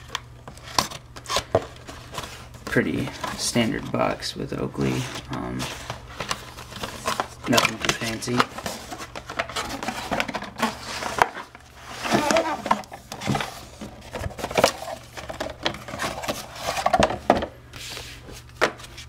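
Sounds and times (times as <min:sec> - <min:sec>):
cardboard box rustling: 0:04.8 - 0:17.4.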